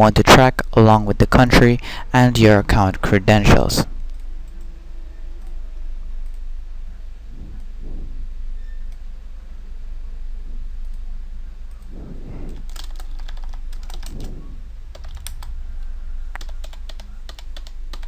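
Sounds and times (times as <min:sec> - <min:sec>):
steady low hum: 0:00.0 - 0:18.0
computer keyboard typing: 0:11.8 - 0:15.5, 0:16.3 - 0:18.0.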